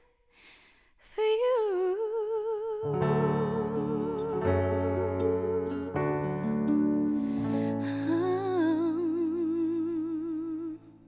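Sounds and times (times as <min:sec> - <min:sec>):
piano chords and bass notes: 0:02.9 - 0:09.3.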